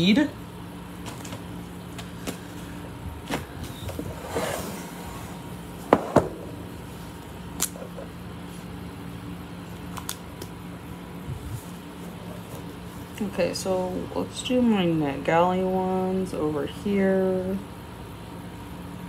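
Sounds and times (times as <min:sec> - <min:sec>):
steady low hum: 0:00.0 - 0:19.0
board sliding on table: 0:03.9 - 0:06.5.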